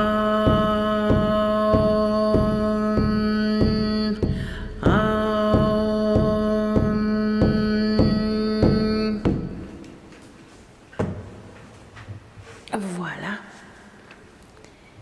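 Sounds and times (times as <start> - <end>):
held hummed tone: 0.0 - 9.8.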